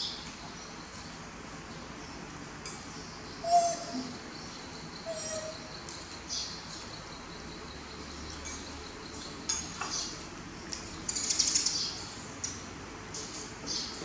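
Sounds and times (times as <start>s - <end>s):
spoons clinking against bowls: 8.3s - 10.0s.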